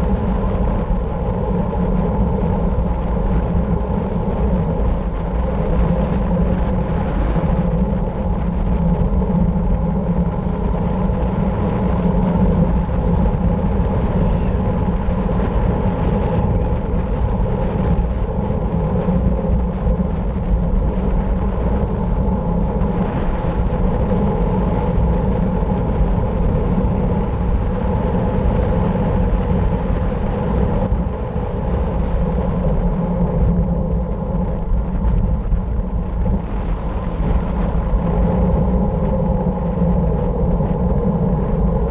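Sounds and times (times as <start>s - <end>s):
wind rushing: 0.0s - 41.9s.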